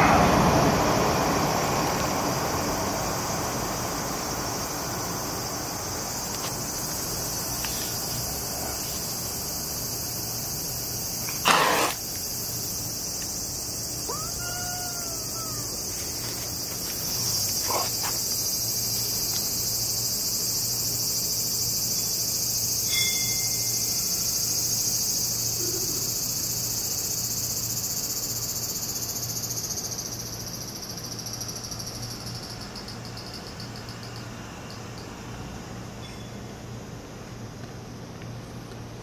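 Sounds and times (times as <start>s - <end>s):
insects chorus: 0.0s - 39.0s
cat meowing: 14.1s - 15.8s.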